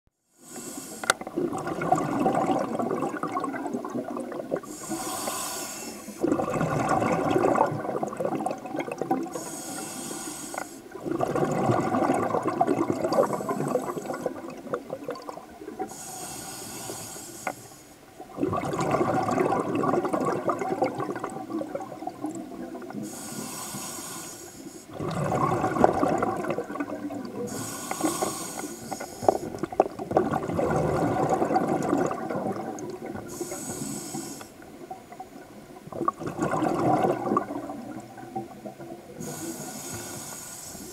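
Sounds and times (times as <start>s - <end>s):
regulator inhale hiss: 0.2s - 1.2s, 4.6s - 6.2s, 9.3s - 10.9s, 15.8s - 18.0s, 23.0s - 25.0s, 27.4s - 29.6s, 33.2s - 34.6s, 39.1s - 40.9s
exhaled bubbles gurgling: 0.6s - 40.9s.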